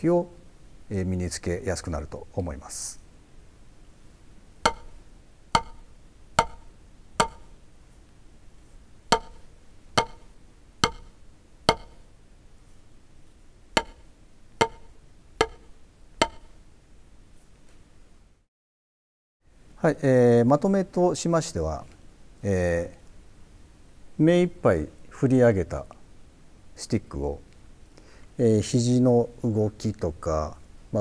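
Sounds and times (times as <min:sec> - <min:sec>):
drumsticks tapping practice pad: 0:04.6 - 0:07.6, 0:09.1 - 0:12.1, 0:13.8 - 0:16.6.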